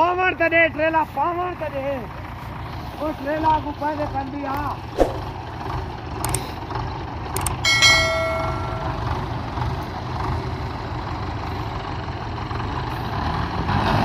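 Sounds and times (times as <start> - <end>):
diesel engines idling: 0.0 - 14.0
sharp metal clank: 7.6 - 9.3.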